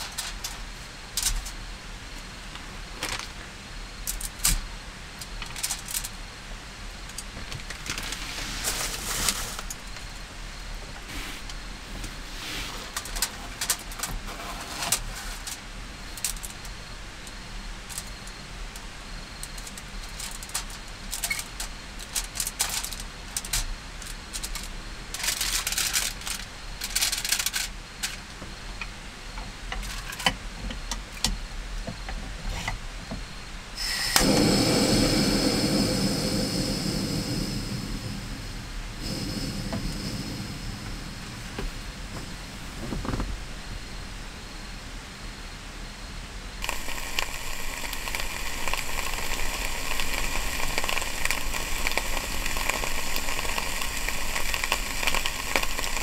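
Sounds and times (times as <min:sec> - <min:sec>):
plastic bag crinkling: 0:07.6 - 0:10.0.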